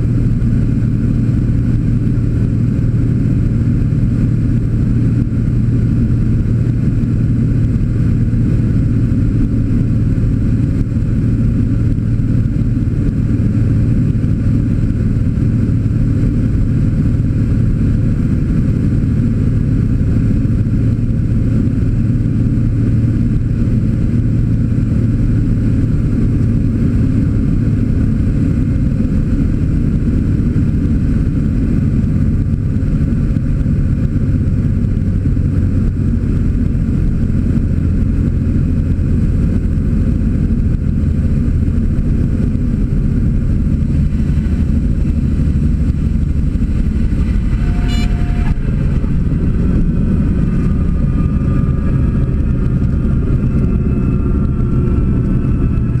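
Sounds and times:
airplane engine and propeller drone: 0.0 - 56.0
short high tone: 46.7 - 49.3.

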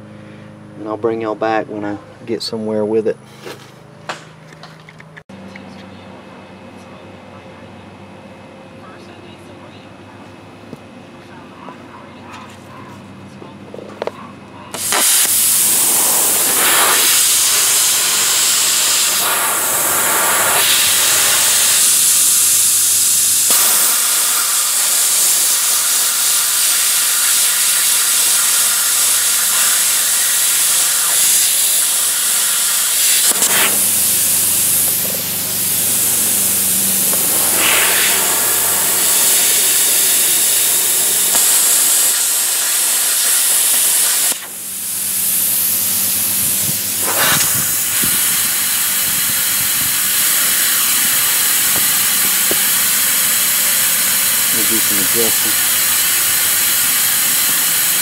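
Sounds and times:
plasma cutter hissing: 14.7 - 58.0.

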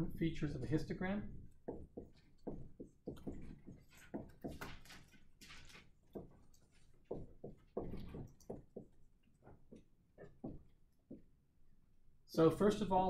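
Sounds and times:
faint knocks and taps: 1.3 - 11.4.

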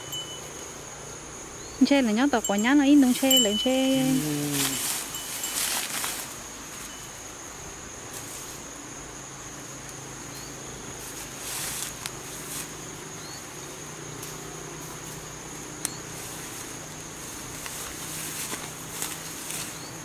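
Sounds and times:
insects droning: 0.0 - 20.0.

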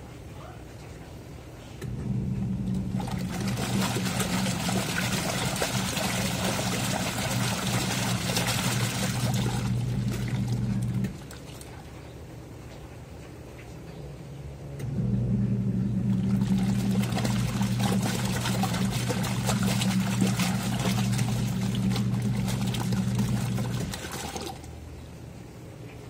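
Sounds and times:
washing machine motor hum: 1.8 - 12.4, 14.5 - 25.4
water churning and sloshing: 2.0 - 12.6, 16.0 - 25.0.

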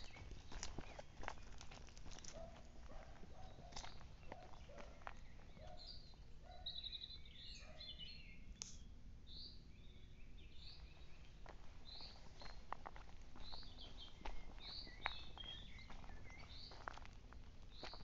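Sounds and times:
footsteps on dry leaves: 0.0 - 5.6, 10.8 - 18.0
small birds chirping: 0.0 - 18.0.

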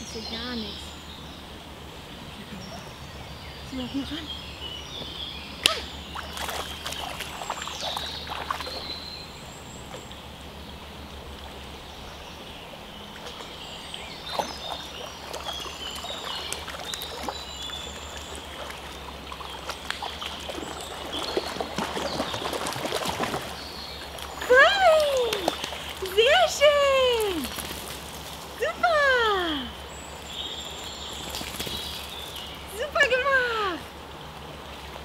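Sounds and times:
water splashing in stream: 5.0 - 10.2, 13.1 - 29.6, 30.7 - 35.0.

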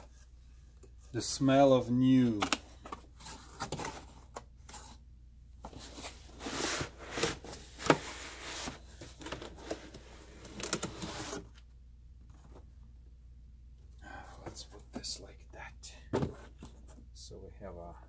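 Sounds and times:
cardboard rustling: 5.6 - 11.6
box scraping: 5.8 - 11.5.

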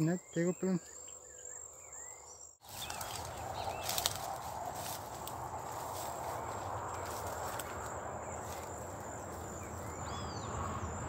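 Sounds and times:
high insect drone: 0.0 - 11.0
footsteps through grass: 2.6 - 9.9.

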